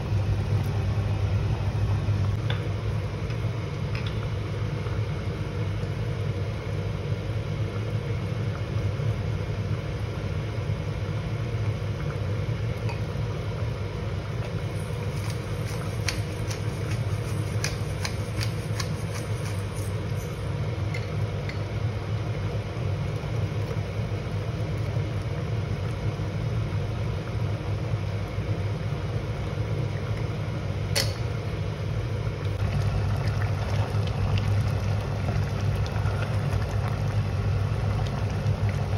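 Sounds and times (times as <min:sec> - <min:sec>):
low mechanical hum: 0:00.0 - 0:38.9.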